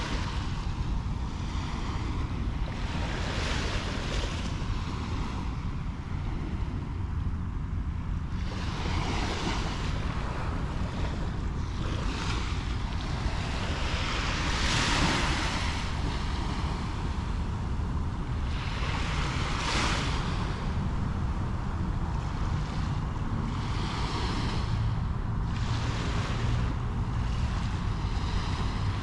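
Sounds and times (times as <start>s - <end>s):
wind rumble on microphone: 0.0s - 29.0s
surf washing onto beach: 8.3s - 29.0s.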